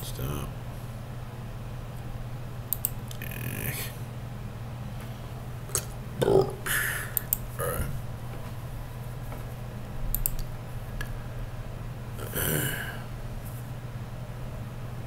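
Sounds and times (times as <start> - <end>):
low microphone hum: 0.0 - 15.0
quick clicks: 2.7 - 3.2.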